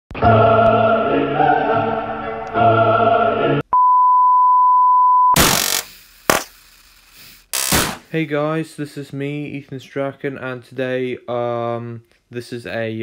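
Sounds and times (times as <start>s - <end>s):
tv static hiss: 5.4s - 8.0s.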